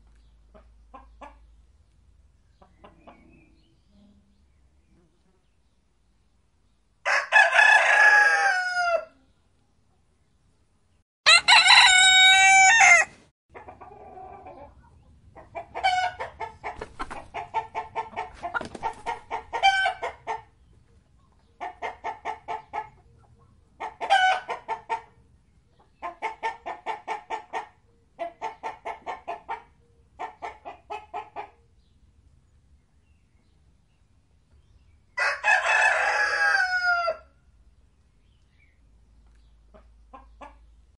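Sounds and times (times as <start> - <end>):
chickens clucking: 0.0 - 4.0, 13.5 - 31.7, 39.2 - 40.8
rooster crowing: 7.0 - 9.2, 11.2 - 13.2, 35.2 - 37.3.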